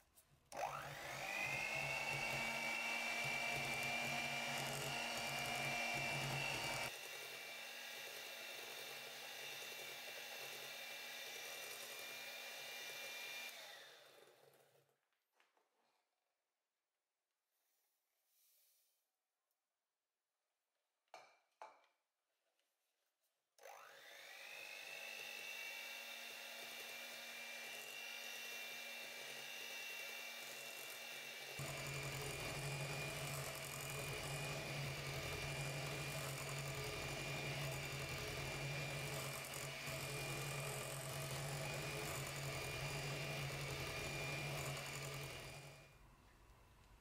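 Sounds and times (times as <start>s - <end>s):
electric hand mixer whining: 0.5s - 14.6s, 23.6s - 46.0s.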